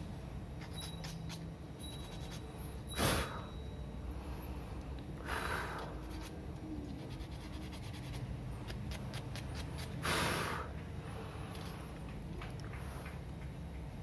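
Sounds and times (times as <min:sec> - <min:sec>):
sandpaper rubbing: 0:00.6 - 0:02.5, 0:06.0 - 0:10.0.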